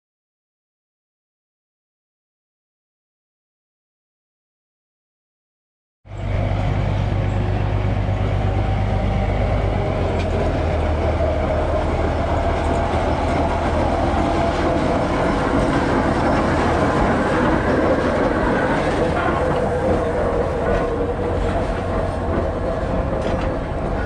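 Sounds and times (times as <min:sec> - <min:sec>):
diesel locomotive drone: 0:06.1 - 0:24.0.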